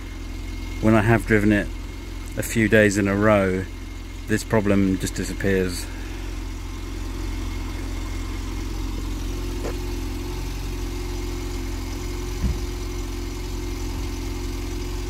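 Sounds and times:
car engine idling: 0:00.0 - 0:15.0
short low thump: 0:12.3 - 0:12.8.

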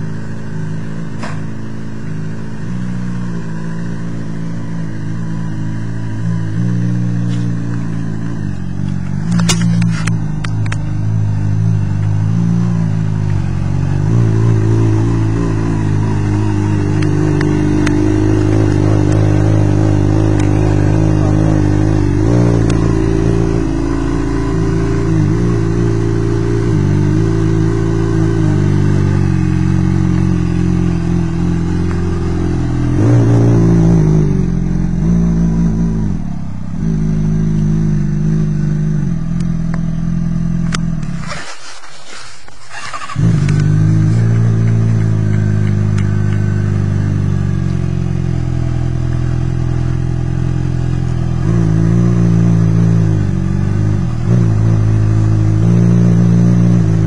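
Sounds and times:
motorcycle engine idling: 0:00.0 - 0:26.4, 0:42.6 - 0:57.0
motorcycle engine revving: 0:00.0 - 0:57.0.

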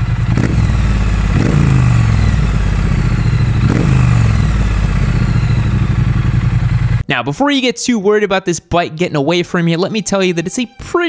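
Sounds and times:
engine revving: 0:00.0 - 0:07.0
motorcycle engine idling: 0:00.0 - 0:07.0.

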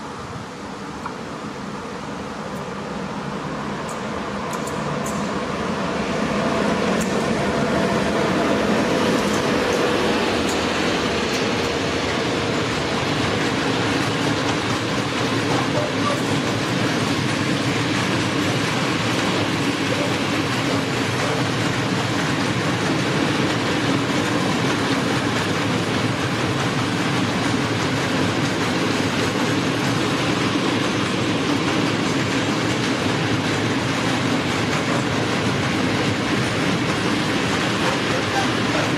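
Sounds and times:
electric locomotive passing: 0:00.0 - 0:38.9
wagon wheels rumbling on rails: 0:08.2 - 0:38.9.

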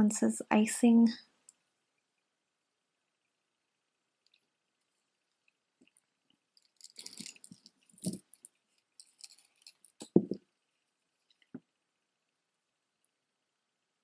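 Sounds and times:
metal jewelry jingling: 0:06.6 - 0:10.3.

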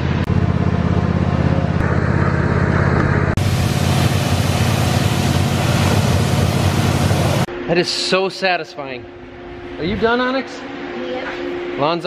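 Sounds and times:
lawn tractor engine running: 0:00.0 - 0:07.4
pressure washer motor hum: 0:00.0 - 0:07.5
pressure washer spray hissing: 0:03.4 - 0:07.5.

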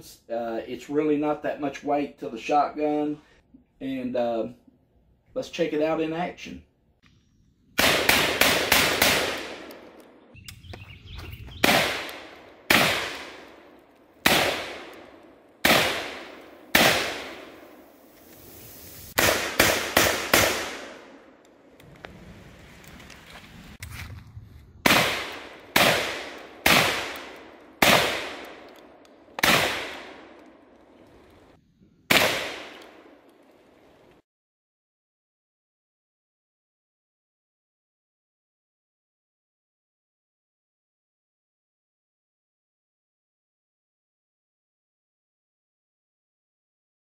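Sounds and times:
shotgun shots ringing out: 0:07.8 - 0:10.2, 0:11.6 - 0:17.7, 0:19.2 - 0:21.3, 0:24.8 - 0:30.4, 0:32.1 - 0:33.2.

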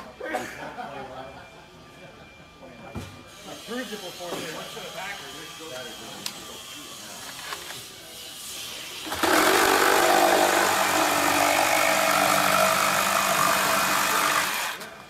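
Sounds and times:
reciprocating saw cutting wood: 0:08.4 - 0:14.9.

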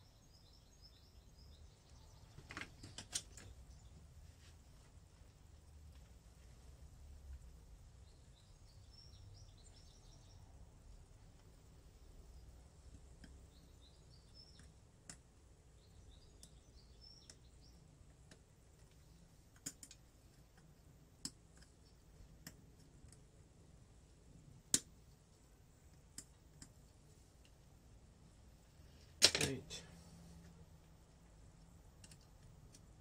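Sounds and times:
small metallic clicks: 0:02.3 - 0:03.6, 0:18.1 - 0:23.3, 0:30.8 - 0:33.0.

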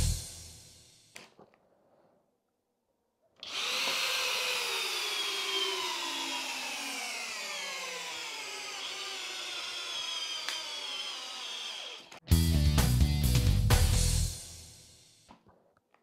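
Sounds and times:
drill motor whine: 0:03.4 - 0:12.2.

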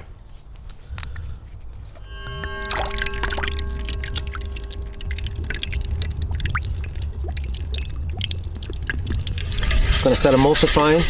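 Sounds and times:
steady low rumble: 0:01.8 - 0:10.1
liquid pouring into metal bowl: 0:02.1 - 0:10.3
drips and splashes: 0:02.1 - 0:10.6.

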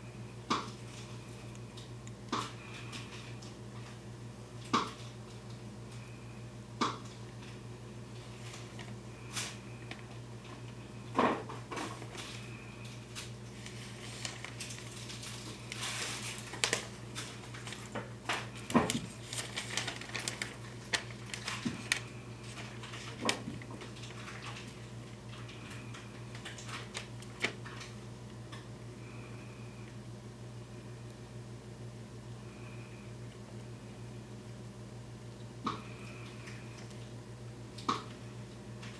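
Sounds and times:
steady low hum: 0:00.0 - 0:38.9
squirrel gnawing: 0:07.2 - 0:28.7.

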